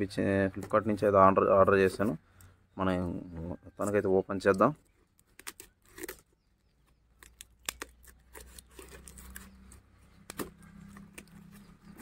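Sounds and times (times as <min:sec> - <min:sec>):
tape and cardboard rustling: 0:03.8 - 0:12.0.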